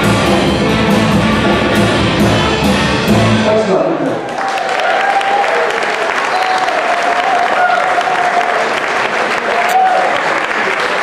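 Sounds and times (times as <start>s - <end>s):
audience applauding and cheering: 4.0s - 11.0s.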